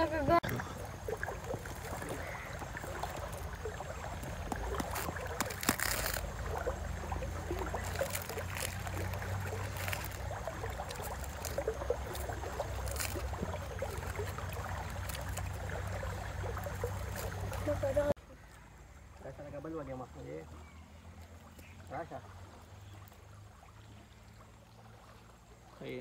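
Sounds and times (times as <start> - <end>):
corn husks rustling and crackling: 1.2 - 18.1.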